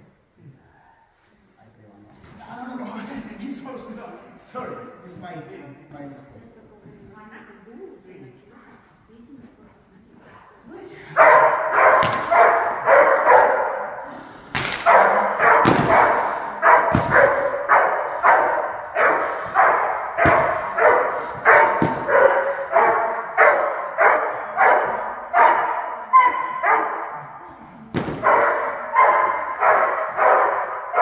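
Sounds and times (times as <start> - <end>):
dog barking: 11.2 - 14.0, 14.8 - 27.2, 28.2 - 31.0.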